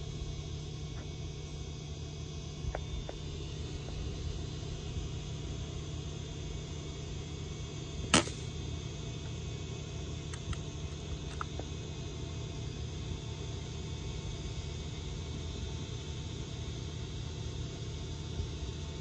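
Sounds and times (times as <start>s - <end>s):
low background hum: 0.0s - 19.0s
air rifle shot crack: 8.1s - 8.6s.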